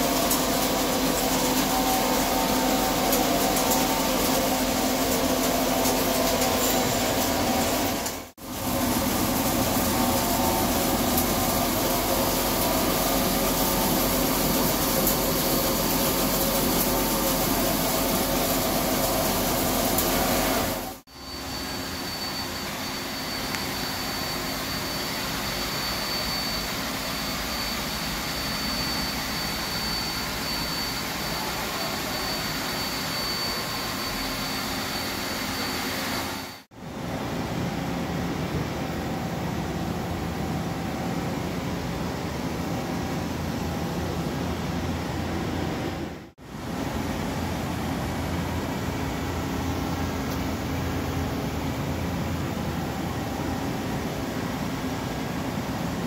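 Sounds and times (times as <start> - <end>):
thin high tone: 0.0 - 8.2, 9.0 - 36.6
lathe mechanical hum and hiss: 0.0 - 56.0.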